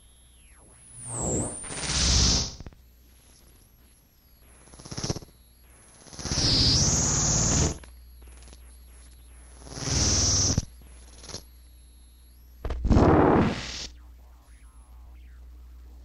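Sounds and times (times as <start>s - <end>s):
high whine: 0.0s - 16.0s
low hum: 7.8s - 16.0s.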